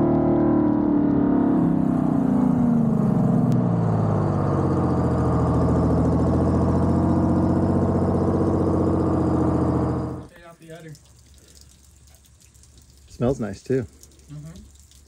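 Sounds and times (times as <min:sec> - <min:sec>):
bus diesel engine running: 0:00.0 - 0:10.3.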